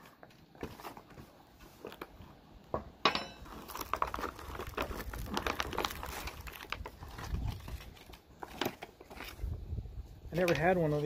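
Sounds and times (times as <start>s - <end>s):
bag crinkling and rustling: 0.0s - 2.4s, 3.4s - 9.6s
plastic bag ripping: 3.4s - 9.5s.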